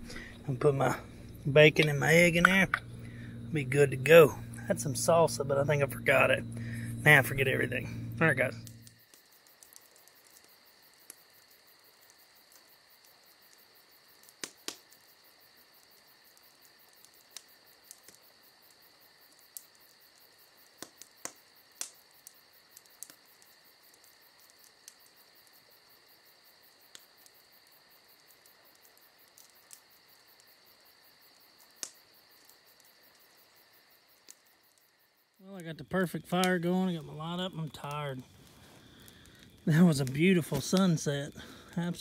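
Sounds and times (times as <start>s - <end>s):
crickets trilling: 0.0s - 42.0s
sharp pops: 14.2s - 15.0s, 20.7s - 22.0s.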